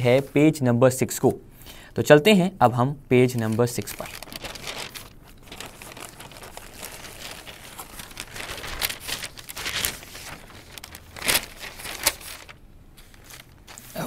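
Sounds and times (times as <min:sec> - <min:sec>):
newspaper pages rustling: 0:03.3 - 0:14.0.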